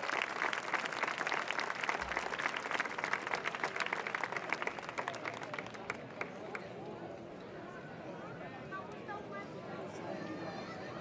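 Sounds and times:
crowd applauding: 0.0s - 6.7s.

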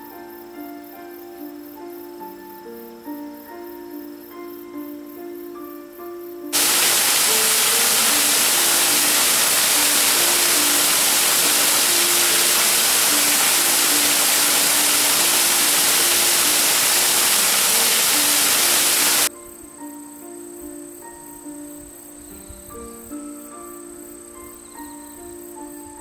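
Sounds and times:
soft background music: 0.0s - 26.0s
waterfall rushing onto rocks: 6.5s - 19.3s.

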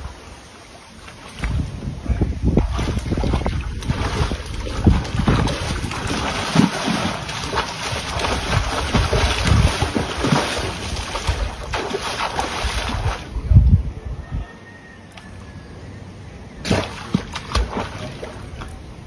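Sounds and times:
pool water splashing: 0.0s - 1.8s, 2.5s - 13.4s, 16.6s - 19.0s
wind buffeting microphone: 1.3s - 14.6s.

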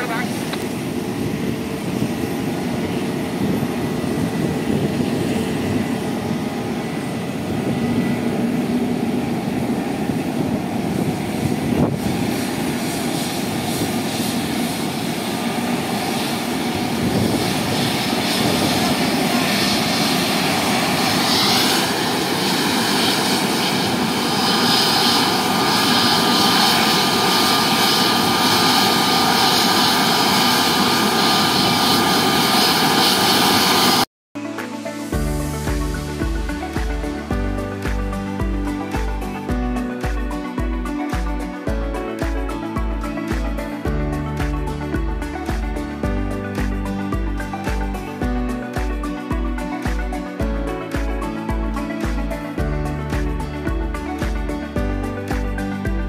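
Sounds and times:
jet engine rumble: 0.0s - 34.1s
high engine whine: 0.0s - 56.0s.

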